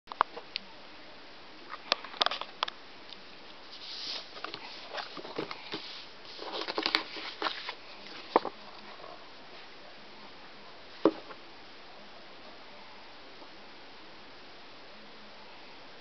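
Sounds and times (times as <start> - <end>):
paper rustling and crinkling: 3.6 - 8.7.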